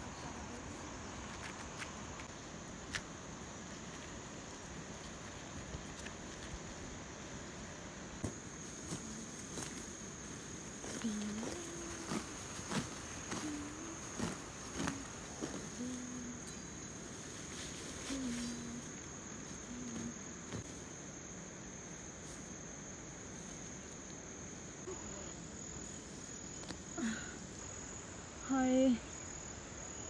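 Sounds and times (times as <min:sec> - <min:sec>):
insects droning: 0:00.0 - 0:30.0
grass rustling and cutting: 0:08.6 - 0:19.0.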